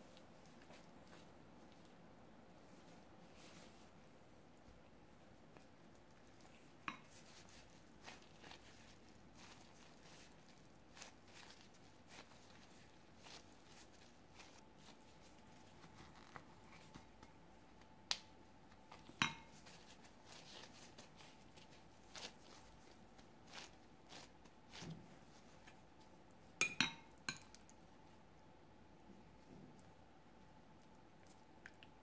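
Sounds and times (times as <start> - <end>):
hands pressing rice in a bowl: 5.5 - 27.8.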